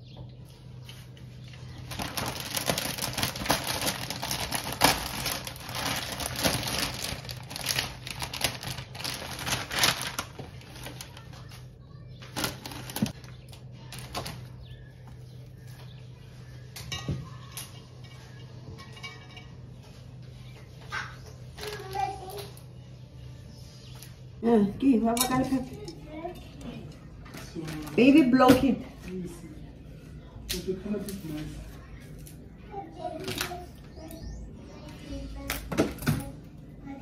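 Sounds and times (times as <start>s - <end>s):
plastic wrapping crinkling: 1.6s - 14.6s, 27.2s - 28.4s.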